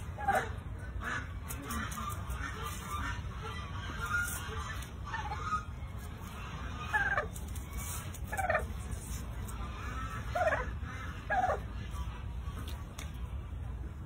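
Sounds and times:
poultry calling: 0.0s - 13.2s
steady low rumble: 0.0s - 14.0s.

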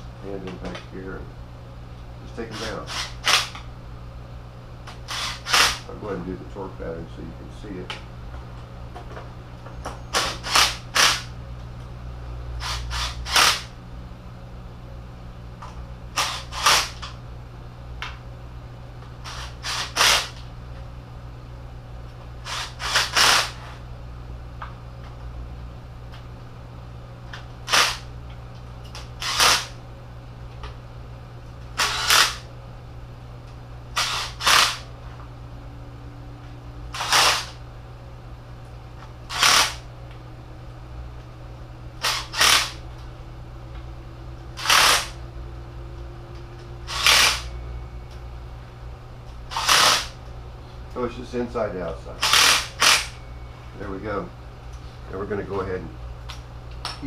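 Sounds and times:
steady low hum: 0.0s - 57.0s
cordless impact driver bursts: 2.6s - 3.6s, 5.0s - 5.9s, 10.2s - 11.3s, 12.6s - 13.7s, 16.2s - 17.1s, 19.2s - 20.4s, 22.4s - 23.7s, 27.7s - 28.1s, 29.0s - 29.8s, 31.8s - 32.5s, 34.0s - 34.8s, 36.9s - 37.6s, 39.3s - 39.8s, 42.0s - 42.8s, 44.6s - 45.2s, 46.9s - 47.5s, 49.5s - 50.2s, 52.2s - 53.1s.

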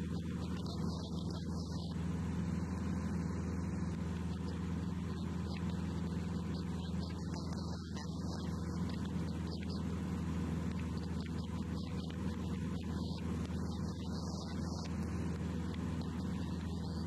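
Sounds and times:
light aircraft engine droning: 0.0s - 17.0s.

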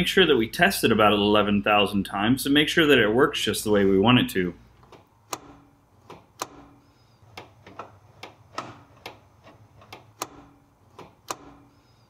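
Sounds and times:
hood release clicks: 4.8s - 11.7s.

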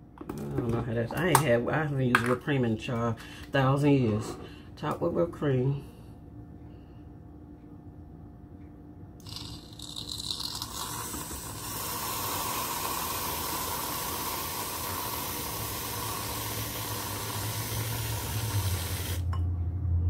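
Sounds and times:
aerosol can spraying hiss: 11.5s - 19.2s.

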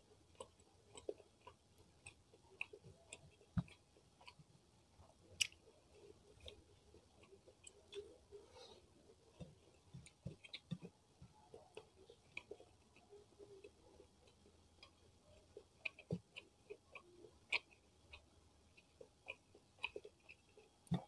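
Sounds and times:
person chewing rice: 0.0s - 21.0s.

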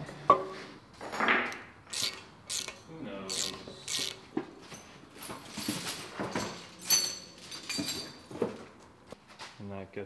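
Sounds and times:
ratchet wrench clicking: 1.9s - 4.2s.

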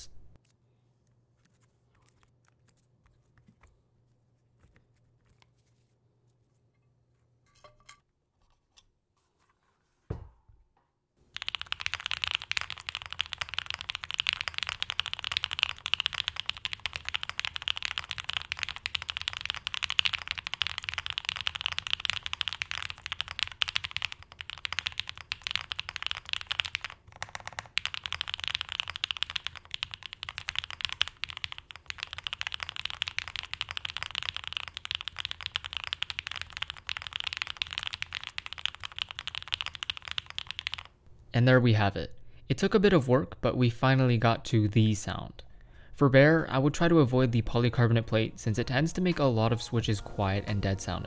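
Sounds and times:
mechanical keyboard typing: 11.3s - 41.0s.

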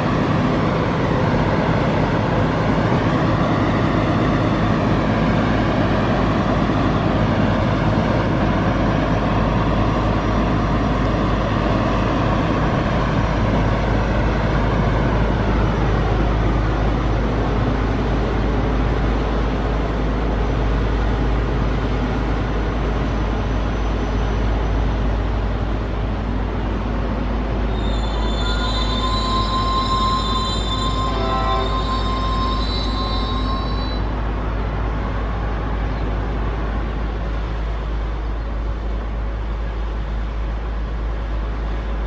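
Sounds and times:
maintenance train rumbling past: 0.0s - 42.0s
wheel squeal: 27.7s - 34.2s.

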